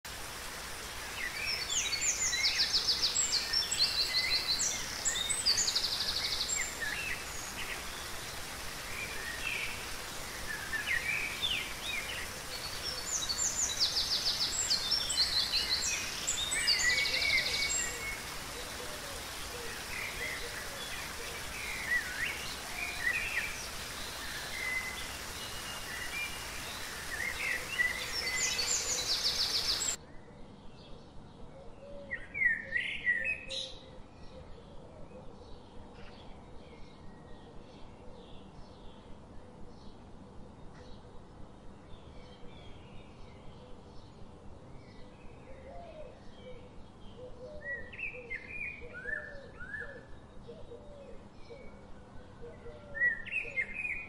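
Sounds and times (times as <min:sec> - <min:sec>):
waterfall rushing: 0:00.1 - 0:30.0
songbirds chirping and trilling: 0:00.1 - 0:54.0.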